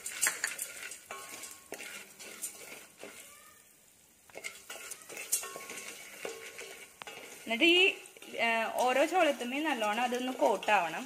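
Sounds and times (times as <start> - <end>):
metal spoon scraping a pot: 0.0 - 3.6, 4.3 - 11.0
light sizzle: 0.0 - 11.0.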